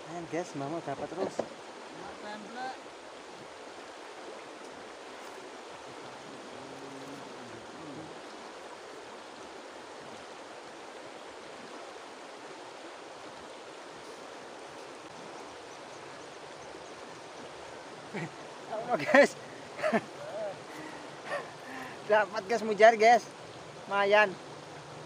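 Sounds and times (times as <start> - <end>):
river rushing over stones: 0.0 - 25.0.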